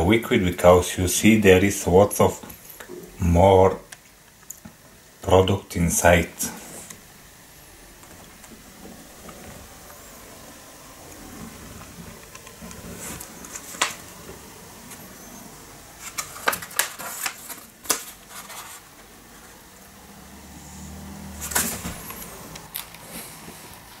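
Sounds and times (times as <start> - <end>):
paper and cardboard clicks and taps: 16.1 - 18.6.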